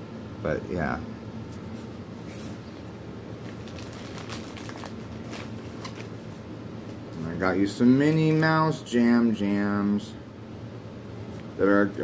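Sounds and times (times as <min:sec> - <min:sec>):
low room hum: 0:00.0 - 0:12.0
clothes and packaging crinkling: 0:03.4 - 0:07.0.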